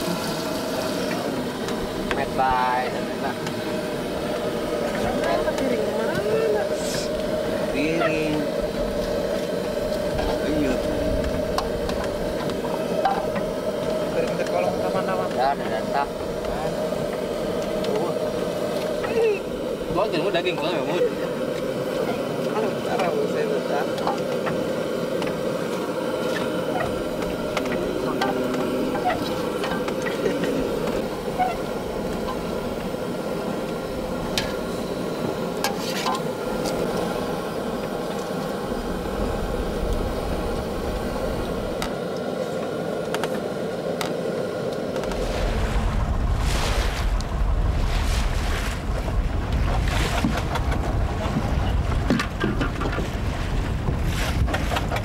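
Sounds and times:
waves splashing against hull: 0:00.0 - 0:42.0, 0:44.9 - 0:55.0
boat engine drone: 0:00.0 - 0:55.0
wind buffeting microphone: 0:45.0 - 0:55.0.

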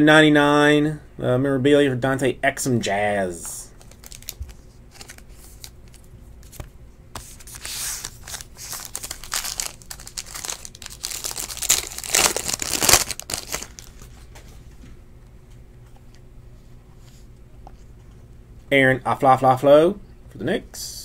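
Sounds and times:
foil wrapper crinkling and tearing: 0:03.8 - 0:06.6, 0:07.4 - 0:14.0.

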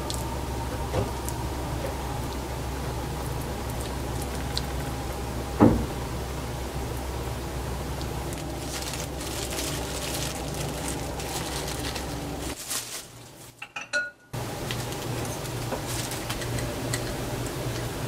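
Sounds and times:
steady low hum: 0:00.0 - 0:13.5.

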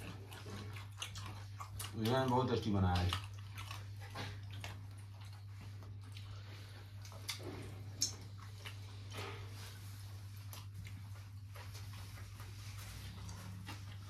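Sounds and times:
person chewing food: 0:00.0 - 0:14.0
steady low hum: 0:00.0 - 0:14.0
mouth clicks and smacks: 0:07.0 - 0:09.2.

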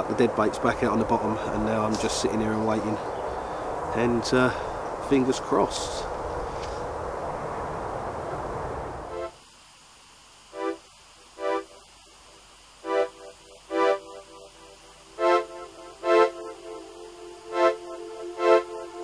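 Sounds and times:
keyboard chords: 0:09.0 - 0:09.4, 0:10.6 - 0:10.8, 0:11.4 - 0:11.8, 0:12.8 - 0:19.0.

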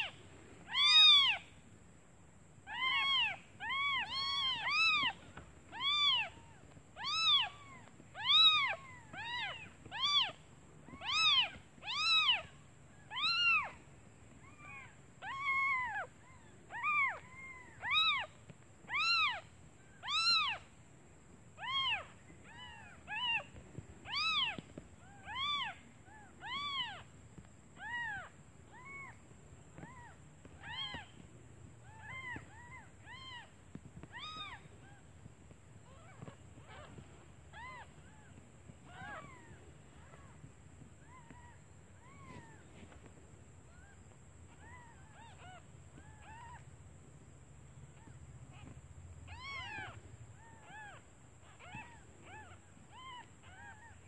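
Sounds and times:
kittens mewing: 0:00.0 - 0:01.5, 0:02.7 - 0:13.8, 0:14.4 - 0:19.4, 0:20.0 - 0:20.6, 0:21.6 - 0:27.1, 0:29.8 - 0:31.2, 0:31.8 - 0:35.0, 0:35.8 - 0:40.4, 0:48.0 - 0:54.0.

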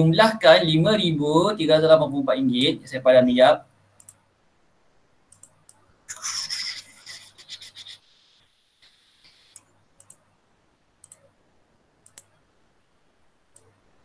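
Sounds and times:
sharp mouse clicks: 0:04.0 - 0:04.2, 0:05.3 - 0:07.9, 0:09.2 - 0:10.2, 0:11.0 - 0:11.3, 0:12.0 - 0:12.4, 0:13.5 - 0:13.8.

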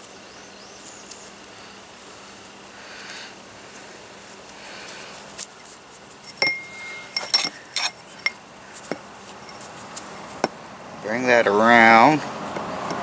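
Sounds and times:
wind chime pipes clinking: 0:06.2 - 0:08.4, 0:09.4 - 0:09.7.

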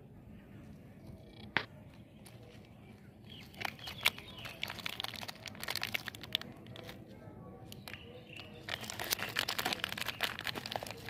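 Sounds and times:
plastic wrapper crinkling: 0:03.2 - 0:07.1, 0:07.7 - 0:11.0.

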